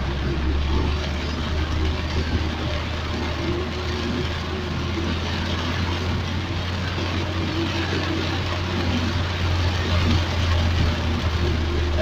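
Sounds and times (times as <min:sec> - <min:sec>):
car engine hum: 0:00.0 - 0:12.0
rain and wet road hiss: 0:00.0 - 0:12.0.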